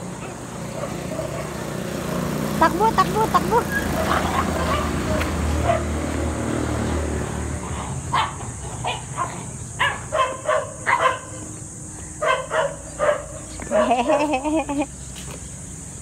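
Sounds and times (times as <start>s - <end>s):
dog yapping barks: 3.6s - 6.0s, 8.1s - 11.4s, 12.2s - 14.0s.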